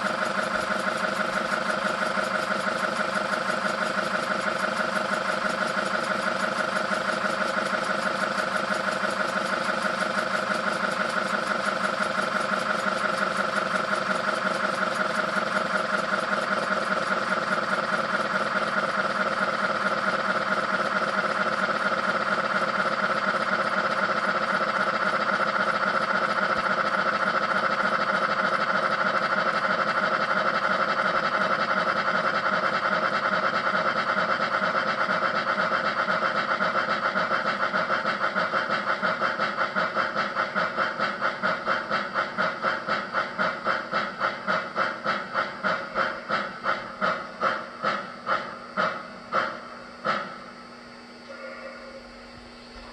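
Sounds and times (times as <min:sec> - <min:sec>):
model steam locomotive chuffing: 0:00.0 - 0:52.9
low steady hum: 0:51.2 - 0:52.9.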